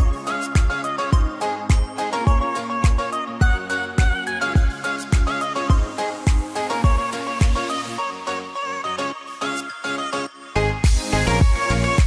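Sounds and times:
low kick drum: 0:00.0 - 0:07.6, 0:10.8 - 0:12.0
background music with steady beat: 0:00.0 - 0:12.0.

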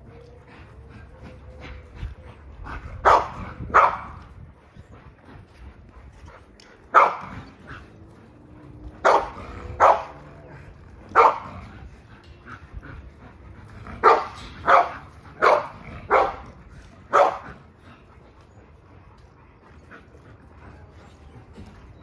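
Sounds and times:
dog barking: 0:03.0 - 0:04.2, 0:06.9 - 0:07.3, 0:09.0 - 0:10.2, 0:11.2 - 0:11.5, 0:14.0 - 0:16.4, 0:17.1 - 0:17.4.

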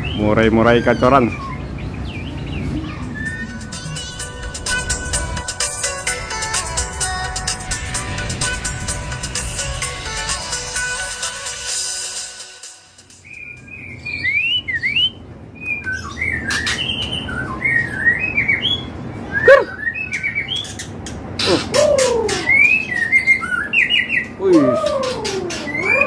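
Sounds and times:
birds singing whistled phrases: 0:00.0 - 0:04.2, 0:13.2 - 0:26.0.

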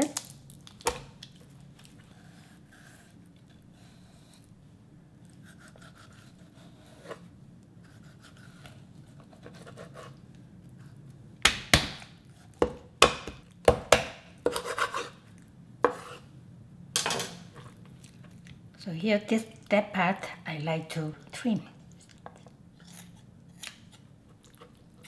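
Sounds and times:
knife chopping on wooden board: 0:12.6 - 0:14.9.

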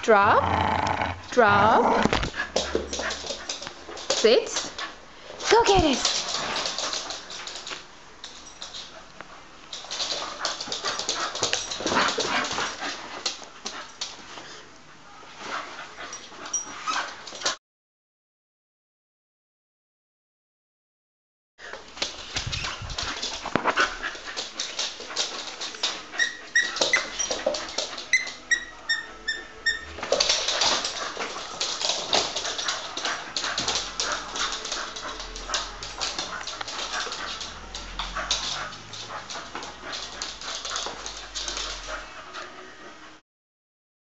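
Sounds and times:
toy squeaks: 0:28.1 - 0:30.0.

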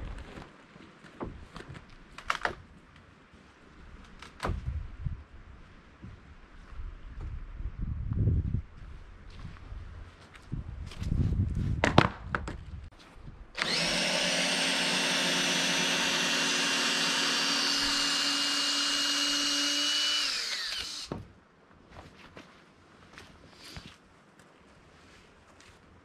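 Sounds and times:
cordless drill driving screw: 0:13.6 - 0:21.1.

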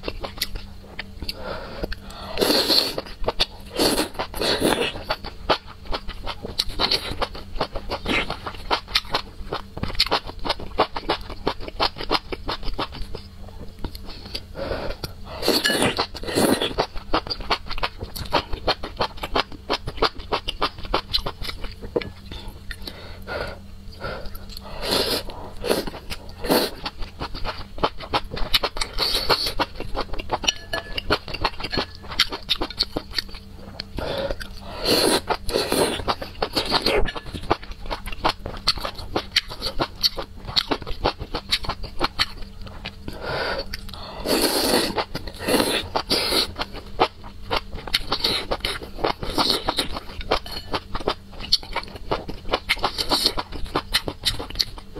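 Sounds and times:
slurping noodles: 0:02.3 - 0:03.1, 0:34.0 - 0:37.0, 0:44.2 - 0:46.6.

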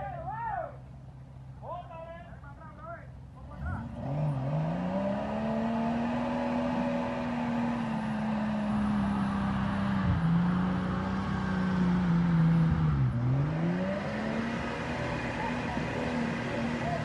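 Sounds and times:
truck engine revving: 0:03.4 - 0:17.0.

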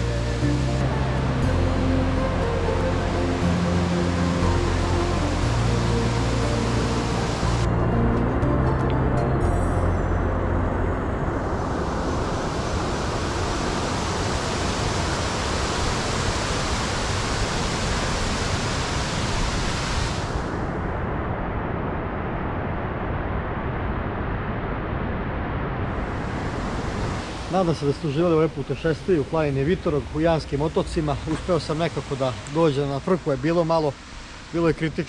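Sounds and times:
river water rushing over cascades: 0:00.0 - 0:07.8, 0:11.4 - 0:20.7, 0:25.8 - 0:35.0.

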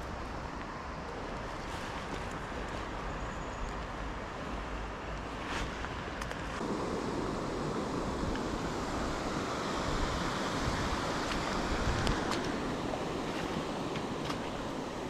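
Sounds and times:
wind rumble on microphone: 0:04.5 - 0:15.0
stream water rushing over stones: 0:06.6 - 0:15.0.

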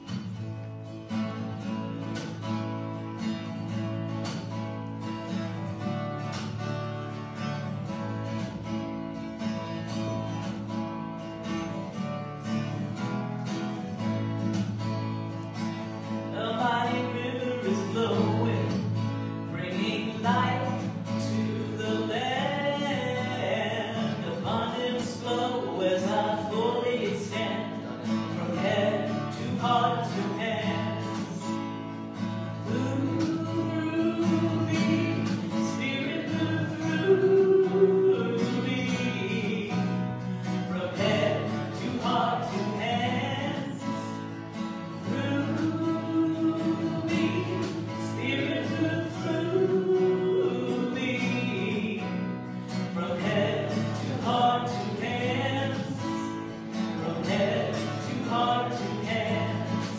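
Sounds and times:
acoustic guitar: 0:00.0 - 0:59.9
woman singing: 0:16.3 - 0:27.7, 0:28.3 - 0:31.5, 0:32.6 - 0:44.2, 0:45.0 - 0:52.3, 0:52.9 - 0:56.4, 0:57.0 - 0:59.9.

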